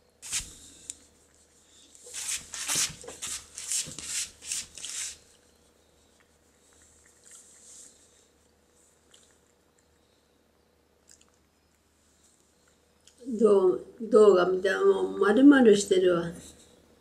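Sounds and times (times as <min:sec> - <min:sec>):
cat chewing food: 0:06.0 - 0:10.0, 0:11.0 - 0:11.6.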